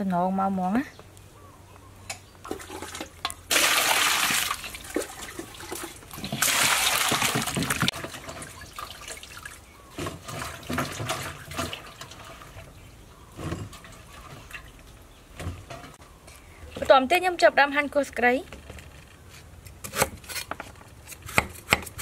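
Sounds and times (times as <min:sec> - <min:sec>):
water splashing and sloshing: 0:02.4 - 0:16.0
water rushing into a metal bowl: 0:02.5 - 0:09.6.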